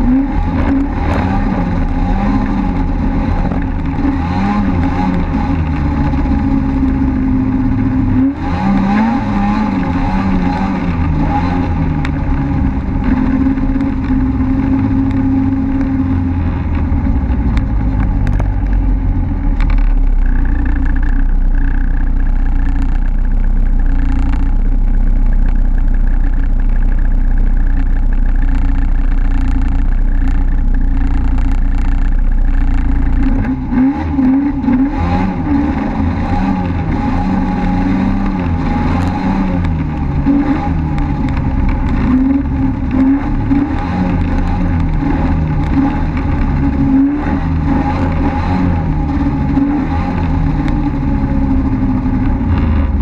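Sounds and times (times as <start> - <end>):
snowmobile engine revving: 0.0 - 18.3, 32.1 - 53.0.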